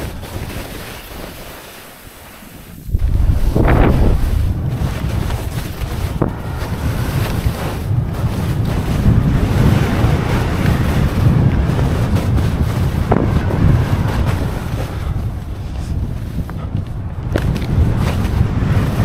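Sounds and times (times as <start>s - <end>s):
skis scraping on snow: 0.0s - 19.0s
wind buffeting microphone: 2.6s - 19.0s.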